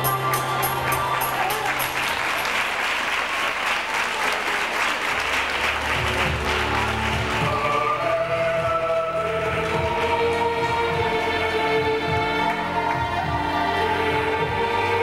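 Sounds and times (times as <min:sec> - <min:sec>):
background music: 0:00.0 - 0:02.6, 0:05.3 - 0:15.0
audience applauding: 0:00.2 - 0:11.5.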